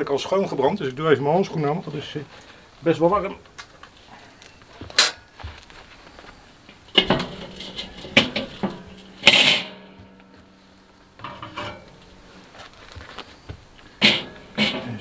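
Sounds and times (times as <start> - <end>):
metal grill grate clanking: 5.0 - 5.3, 6.8 - 10.6, 11.2 - 12.4, 14.0 - 15.0
metal grate ringing: 6.9 - 10.4, 11.2 - 12.2, 14.0 - 15.0.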